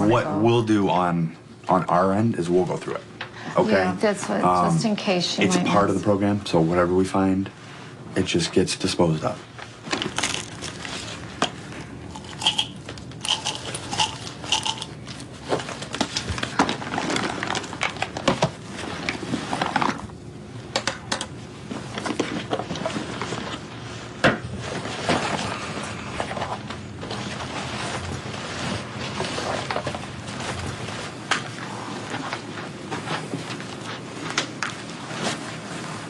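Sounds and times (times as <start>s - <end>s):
small items knocking and clinking: 12.2s - 15.0s
rustling of fabric: 21.7s - 36.0s.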